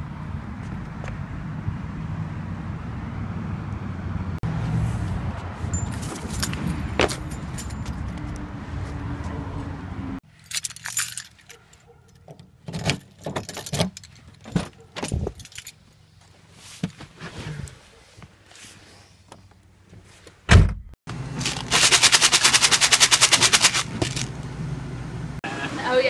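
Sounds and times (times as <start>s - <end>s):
car keys jangling: 5.7s - 8.1s, 10.3s - 15.8s
handling clatter: 10.4s - 15.8s, 21.4s - 24.4s
car door shutting: 20.5s - 20.9s
coffee beans rattling in cup: 21.4s - 24.3s.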